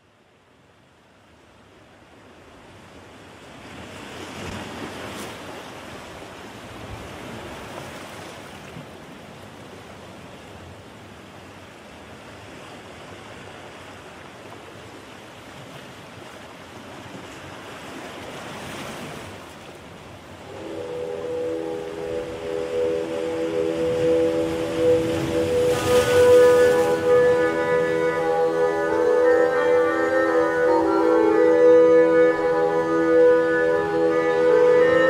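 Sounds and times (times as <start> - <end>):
ocean waves washing in: 1.0 - 35.0.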